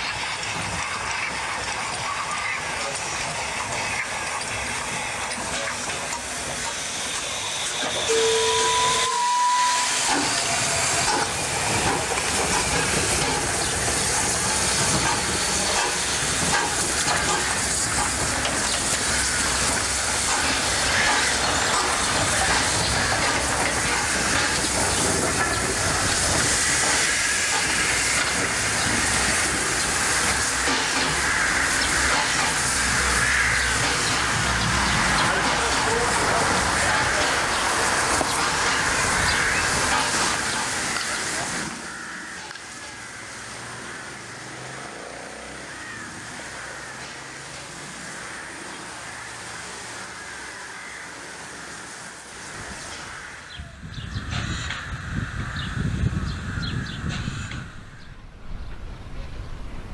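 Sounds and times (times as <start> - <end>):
steam hissing: 0.0 - 59.9
steam locomotive whistle: 7.4 - 11.2.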